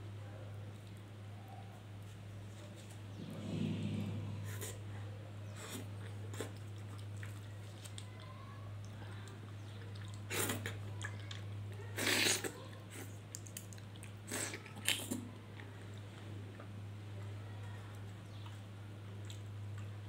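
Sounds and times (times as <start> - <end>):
low hum: 3.0 - 5.1.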